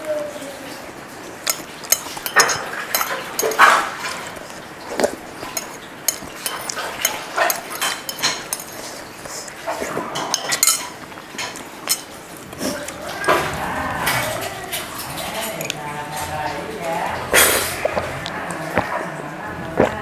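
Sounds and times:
metal spoon scraping ceramic plate: 1.5 - 4.4, 5.0 - 12.1.

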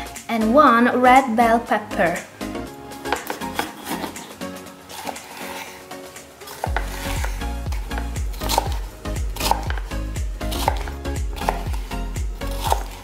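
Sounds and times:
background music with deep bass: 0.0 - 13.0
knife cutting on wooden board: 3.0 - 13.0.

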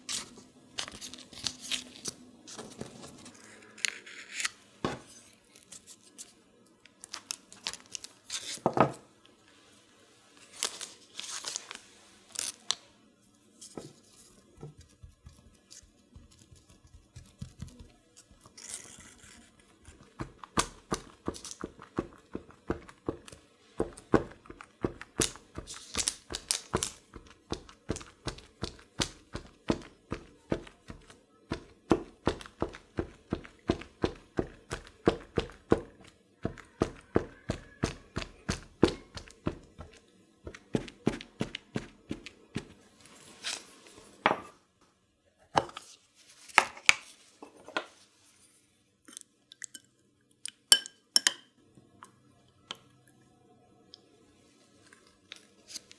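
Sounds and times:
rustling and tearing: 0.0 - 4.6, 7.0 - 8.6, 10.4 - 12.8, 17.3 - 20.1
dough peeled off parchment paper: 10.4 - 12.8, 18.2 - 20.2.

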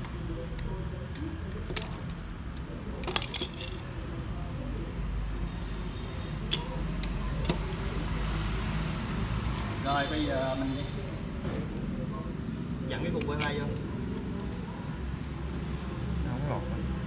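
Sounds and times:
plastic connectors clicking: 0.0 - 3.9, 13.1 - 14.6.

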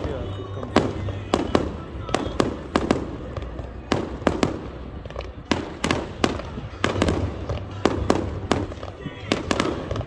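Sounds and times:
fireworks bangs: 0.0 - 10.0.

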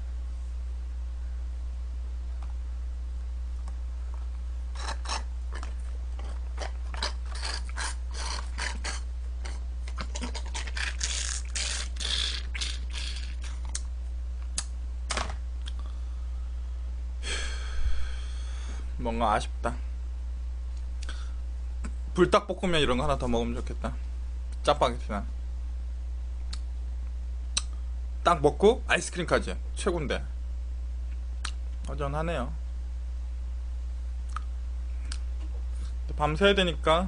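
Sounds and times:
steady low hum: 0.0 - 37.0
slurping through a straw: 4.8 - 13.6
short vocal sound: 10.0 - 13.5.

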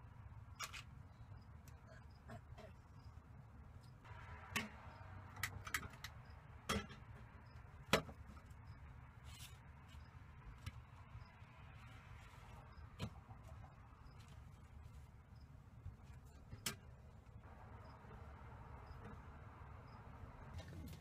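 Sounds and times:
sharp clicks and knocks: 4.4 - 8.5.

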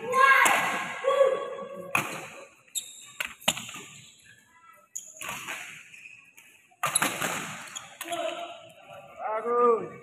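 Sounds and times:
rackets hitting shuttlecock: 1.9 - 2.6
shoe squeaks on court: 2.0 - 8.4.

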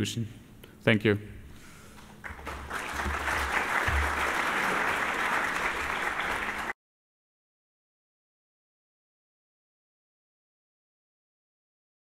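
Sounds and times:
audience applauding: 2.0 - 6.8.

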